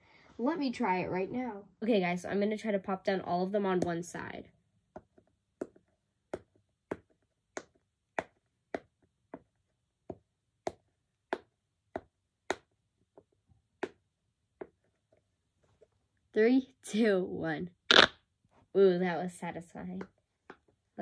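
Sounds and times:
fidget toy bubbles popping: 17.9 - 18.1.

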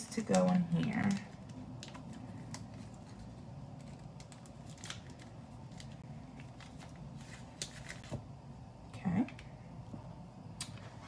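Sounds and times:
packet rustling: 0.0 - 8.2.

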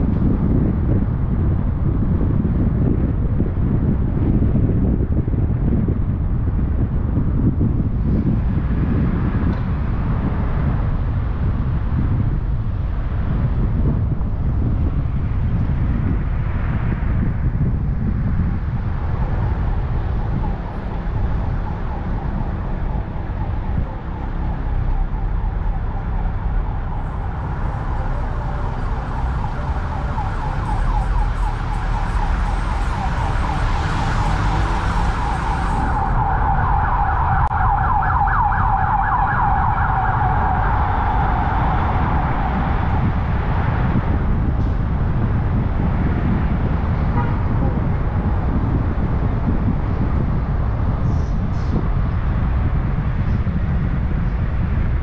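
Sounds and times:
car driving rumble: 0.0 - 55.0
emergency siren wailing: 19.0 - 45.2.

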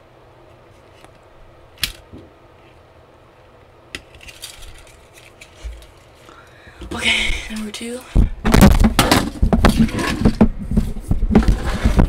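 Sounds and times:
plastic toy handling clicks: 1.8 - 2.0, 3.9 - 6.1.

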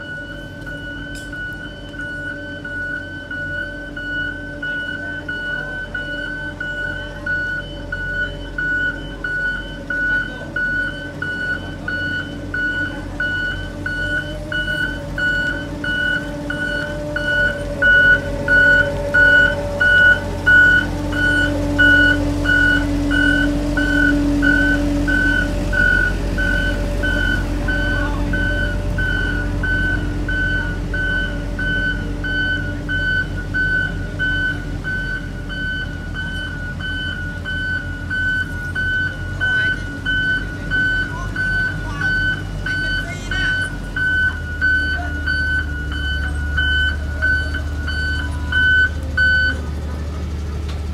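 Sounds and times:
reversing alarm beeping: 0.0 - 49.8
road roller diesel engine running: 0.0 - 50.9.

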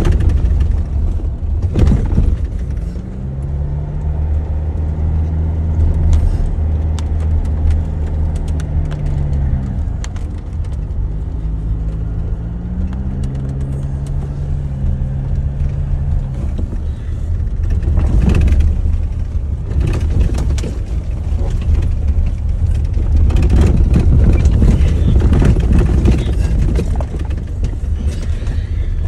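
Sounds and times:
knocks and rattles: 0.0 - 29.0
vehicle engine and road rumble: 0.0 - 29.0.

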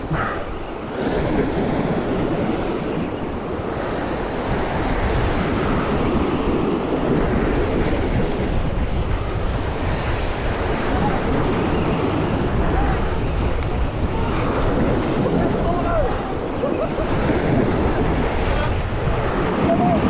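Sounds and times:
sea surf breaking on rocks: 0.0 - 20.0
wind buffeting microphone: 0.0 - 20.0.

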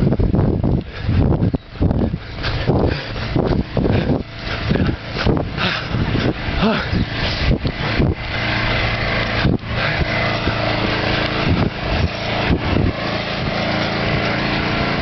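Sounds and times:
small gasoline engine running: 0.0 - 15.0.

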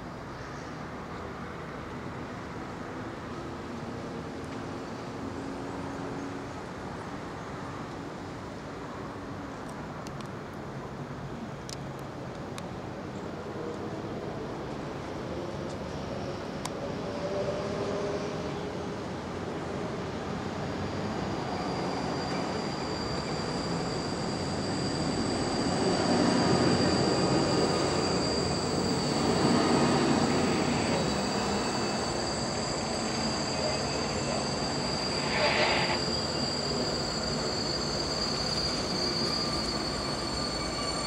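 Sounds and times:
train wheels rumbling on rails: 11.7 - 41.0
high-pitched wheel squeal: 20.7 - 41.0.

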